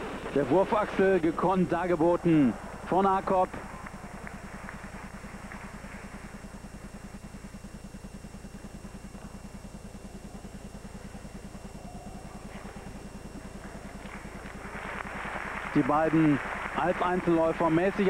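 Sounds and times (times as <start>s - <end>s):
low pulsing hum: 0.0s - 18.0s.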